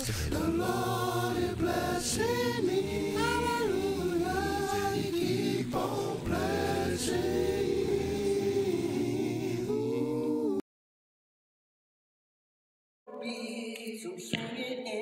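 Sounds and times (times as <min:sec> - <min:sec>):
group singing a cappella gospel: 0:00.0 - 0:10.6.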